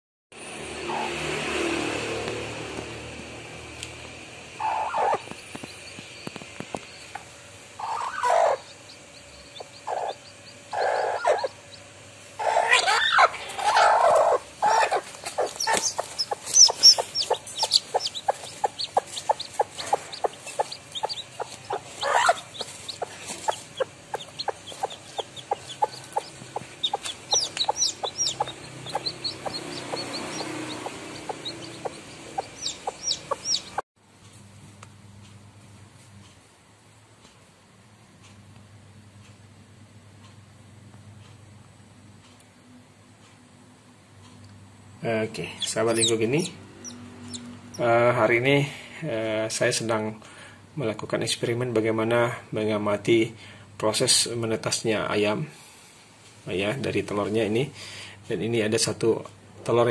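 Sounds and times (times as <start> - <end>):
hen clucking: 0.9 - 1.2, 4.5 - 33.8, 45.1 - 48.2
chicks peeping: 0.9 - 1.3, 4.6 - 33.8, 45.1 - 48.7.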